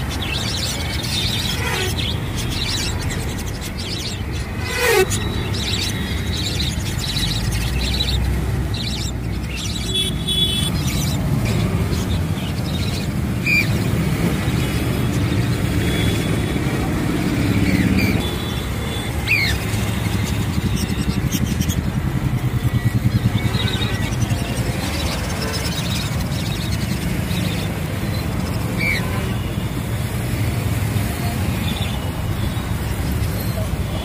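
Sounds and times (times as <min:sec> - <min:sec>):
high bird chirps: 0:00.0 - 0:16.2
street noise: 0:00.0 - 0:34.0
vehicle engine running: 0:13.8 - 0:29.6.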